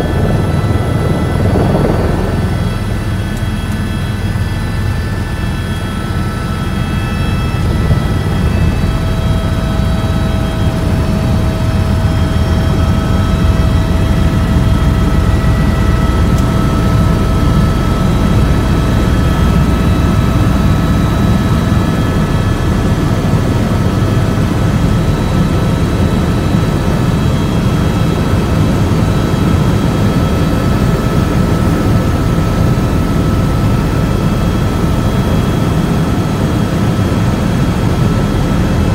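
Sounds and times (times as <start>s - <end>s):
faint whining tones: 0.0s - 25.8s
aircraft engine drone in cabin: 0.0s - 38.9s.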